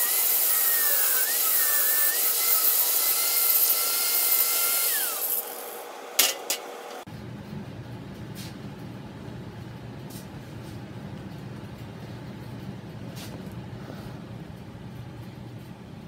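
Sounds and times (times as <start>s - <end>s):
angle grinder spinning down: 0.0s - 7.0s
steady low hum: 6.2s - 16.0s.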